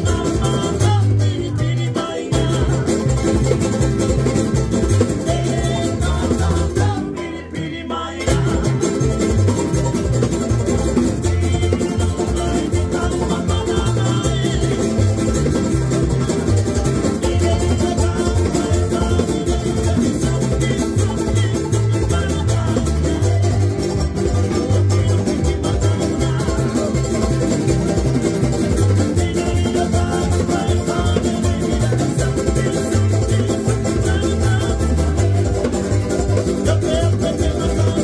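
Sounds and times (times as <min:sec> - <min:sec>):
string band playing: 0:00.0 - 0:38.0.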